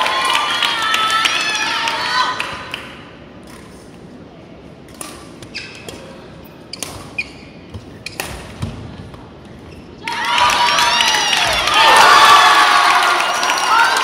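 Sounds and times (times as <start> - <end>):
spectators cheering: 0.0 - 2.5, 10.0 - 14.0
shoes squeaking on floor: 5.3 - 8.8, 9.4 - 10.0
racket hitting shuttlecock: 6.8 - 8.8.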